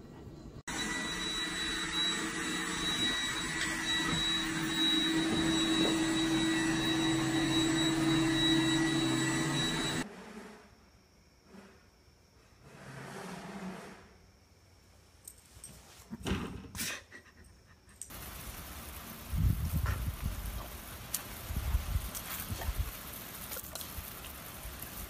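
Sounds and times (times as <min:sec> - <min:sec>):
high whine: 0:00.7 - 0:10.0
robot vacuum motor hum: 0:00.7 - 0:10.0.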